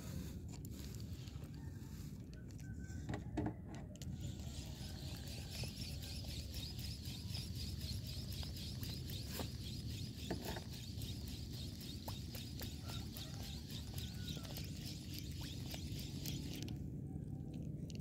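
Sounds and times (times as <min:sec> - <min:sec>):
fishing rod and reel knocking: 0:04.2 - 0:16.7
rapid high ticking: 0:04.5 - 0:16.6.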